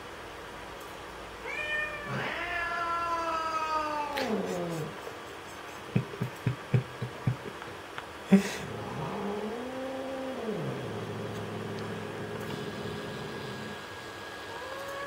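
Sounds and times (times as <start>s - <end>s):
cat growling and yowling: 1.4s - 5.0s, 8.6s - 12.5s, 14.5s - 15.0s.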